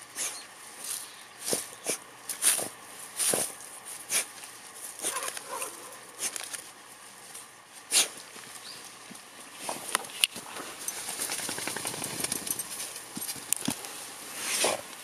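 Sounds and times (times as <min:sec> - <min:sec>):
dog scuffing soil and snow: 0:00.2 - 0:06.6, 0:12.8 - 0:14.9.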